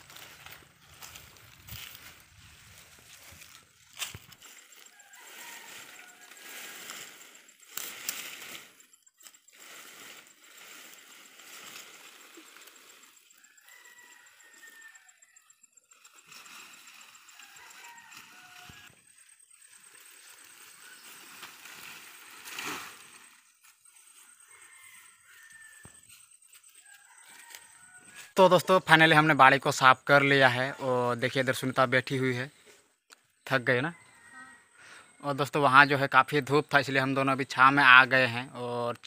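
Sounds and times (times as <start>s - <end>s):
plant stalks rustling and crackling: 0.0s - 13.5s, 16.0s - 24.7s.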